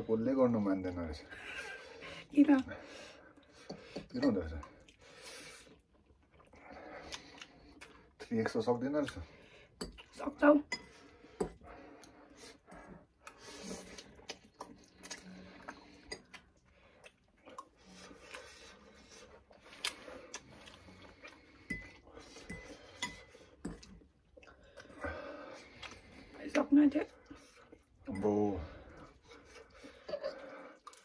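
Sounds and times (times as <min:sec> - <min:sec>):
cutlery clinking on ceramic bowls: 0:10.7 - 0:11.6, 0:21.6 - 0:23.9, 0:28.0 - 0:28.5.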